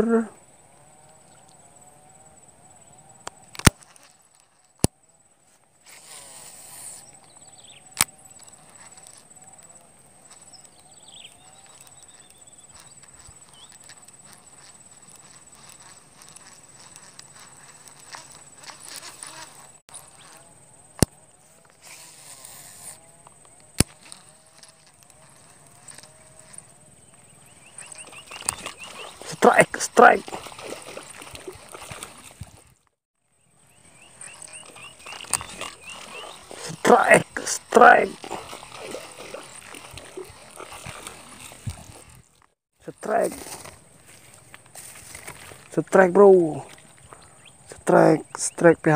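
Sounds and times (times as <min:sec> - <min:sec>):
fishing line whirring off reel: 0:05.8 - 0:07.2, 0:21.7 - 0:23.1, 0:23.8 - 0:26.7, 0:34.1 - 0:36.8, 0:38.1 - 0:42.3
high-pitched insect drone: 0:21.9 - 0:32.3.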